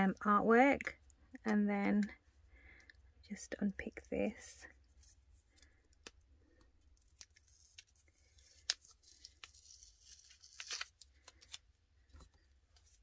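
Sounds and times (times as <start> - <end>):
tape rustling and clicking: 4.8 - 13.0.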